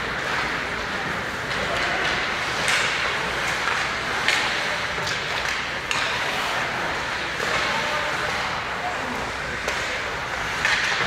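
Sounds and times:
skates scraping ice: 0:00.0 - 0:11.0
sticks and puck clacking: 0:00.0 - 0:11.0.

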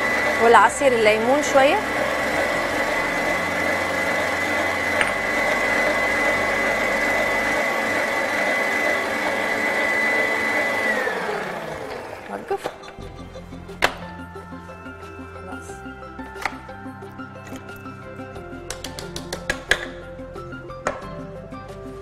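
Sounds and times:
stand mixer whining: 0:00.0 - 0:15.4.

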